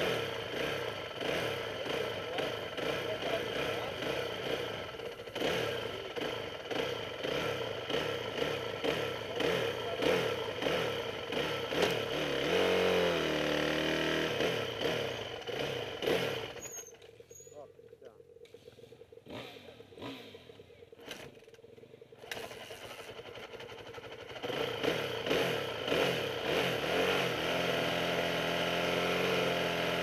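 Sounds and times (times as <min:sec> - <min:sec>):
racing engine revving: 0:00.0 - 0:16.6, 0:18.6 - 0:21.3, 0:24.4 - 0:30.0
rattling mechanical noise: 0:15.2 - 0:24.3.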